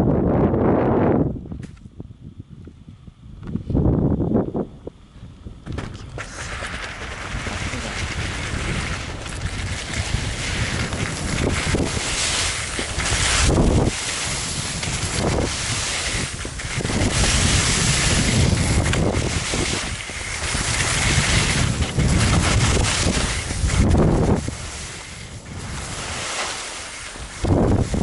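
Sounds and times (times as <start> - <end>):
wind buffeting microphone: 0.0 - 28.0
skis hissing over snow: 6.0 - 28.0.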